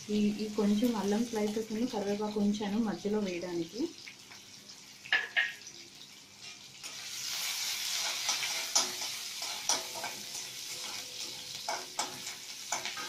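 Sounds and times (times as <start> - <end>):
food sizzling in hot oil: 0.0 - 13.0
metal spatula scraping pan: 7.8 - 13.0.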